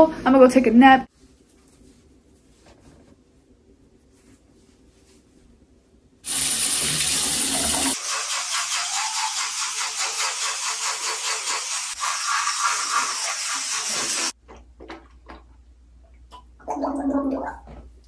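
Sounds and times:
tap water running into sink: 6.3 - 15.1
teeth brushing: 8.0 - 14.3
person gargling: 16.6 - 17.8.

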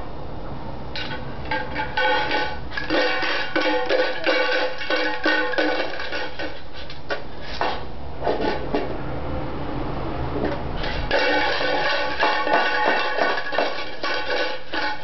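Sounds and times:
can rattling and scraping: 1.0 - 8.6, 10.8 - 15.0
metal can clanking: 1.0 - 8.9, 10.8 - 15.0.

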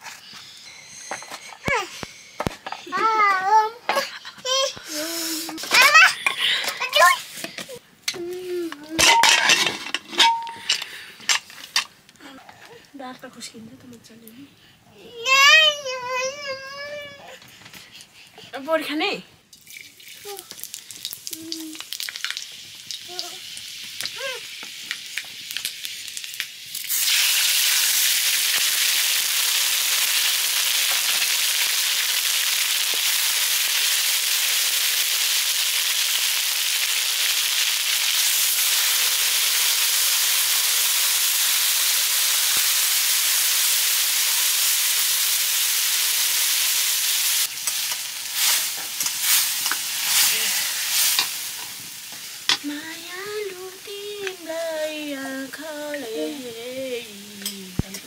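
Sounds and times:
food sizzling in hot oil: 19.5 - 58.0.

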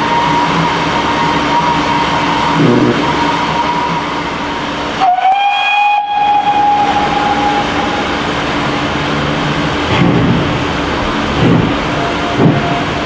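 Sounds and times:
steam whistle blast: 0.0 - 8.2
steam locomotive running: 0.0 - 13.0.

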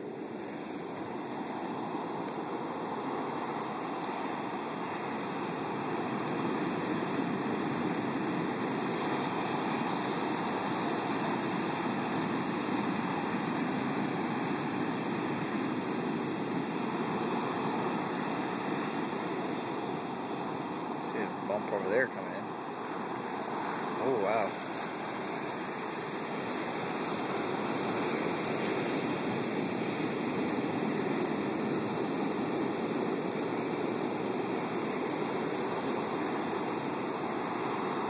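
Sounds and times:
surf breaking on beach: 0.0 - 38.0.

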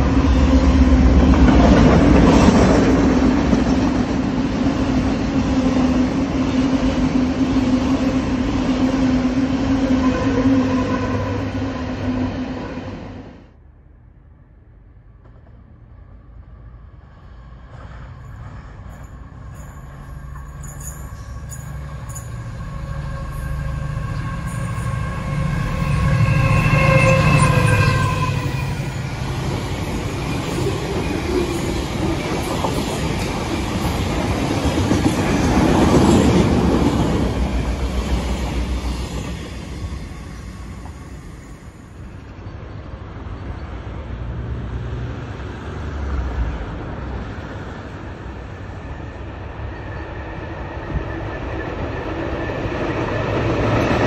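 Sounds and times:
diesel locomotive engine humming: 0.0 - 54.0
train clattering and rumbling past: 0.0 - 54.0
train horn blast: 9.7 - 12.9, 22.5 - 29.1.

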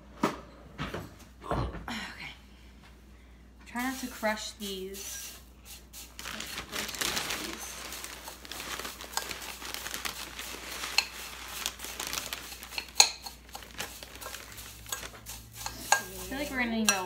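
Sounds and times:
plastic bag crinkling: 6.0 - 16.7.

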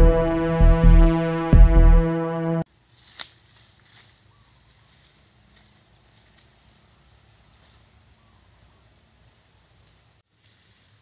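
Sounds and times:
faint rustle: 2.8 - 11.0.

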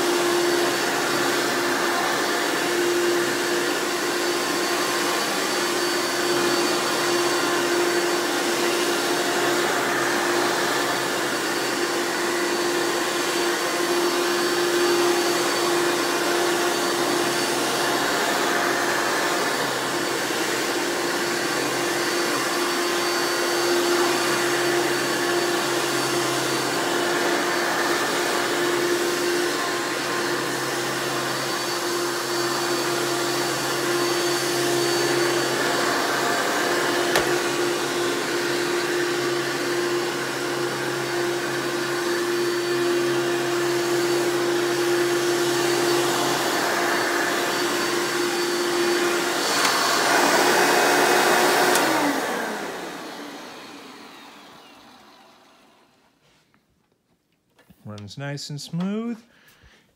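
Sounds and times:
upright vacuum running: 0.0 - 56.4.

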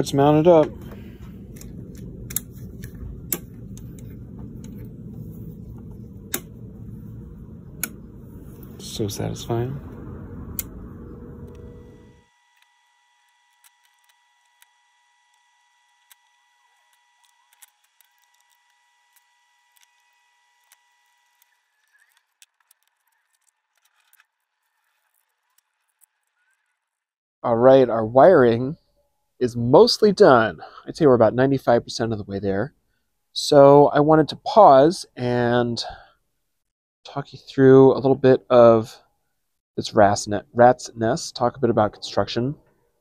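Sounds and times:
low steady background noise: 0.0 - 12.2
faint high whine: 0.0 - 13.2
small parts clicking: 12.5 - 14.7, 15.3 - 27.0.

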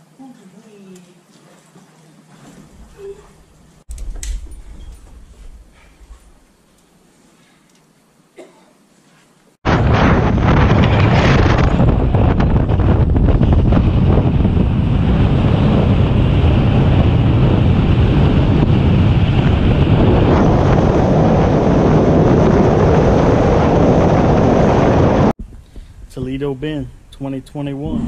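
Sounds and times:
wind buffeting microphone: 9.6 - 28.0.

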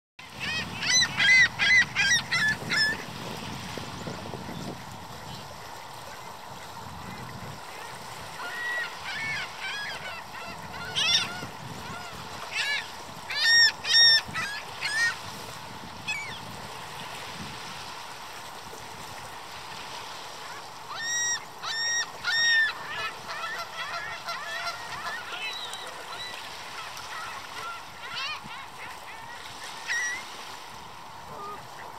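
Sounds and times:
small waves washing on shore: 0.2 - 31.9
gull calling loudly: 8.4 - 15.2.

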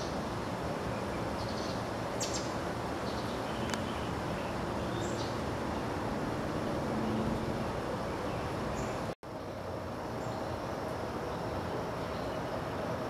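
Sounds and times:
outdoor background noise: 0.0 - 13.0.

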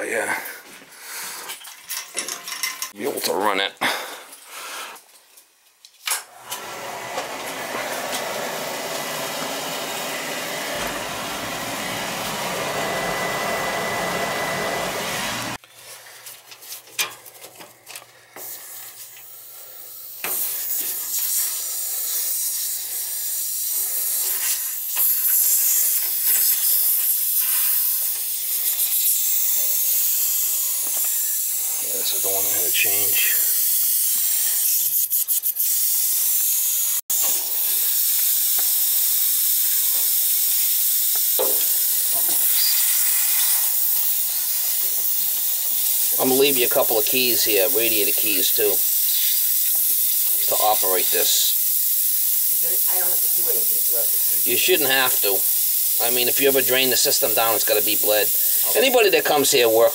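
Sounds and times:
air hissing from radiator valve: 18.3 - 59.9
steady rushing hiss: 37.4 - 59.9.

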